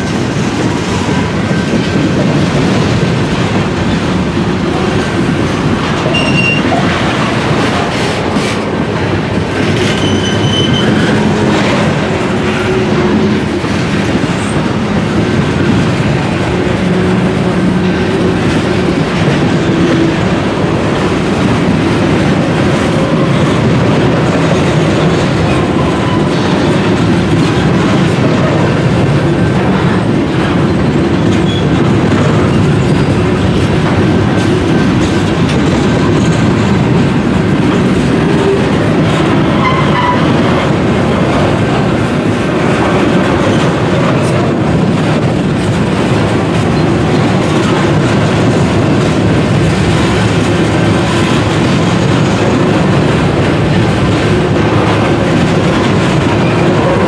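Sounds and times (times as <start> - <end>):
train wheels rumbling on rail: 0.0 - 57.0
faint wheel squeal: 9.9 - 11.1.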